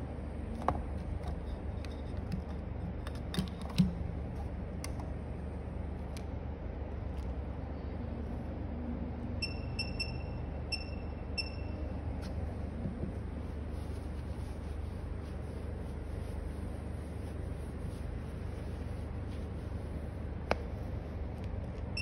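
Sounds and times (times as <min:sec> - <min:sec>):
steady low hum: 0:00.0 - 0:22.0
short high electronic beeps: 0:09.4 - 0:11.8.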